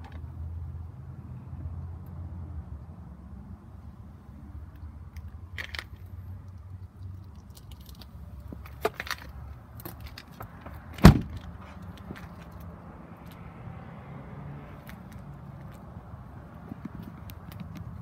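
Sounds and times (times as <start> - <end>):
light clicks and rattles: 4.7 - 10.7
car door shutting thud: 11.0 - 11.4.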